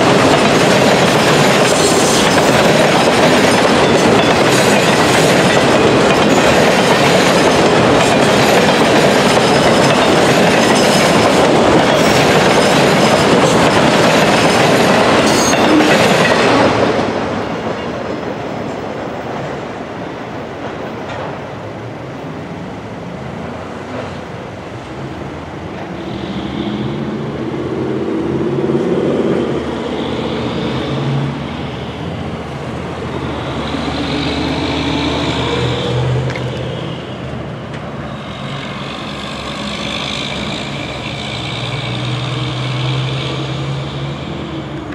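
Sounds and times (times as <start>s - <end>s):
cars driving past: 23.1s - 44.9s.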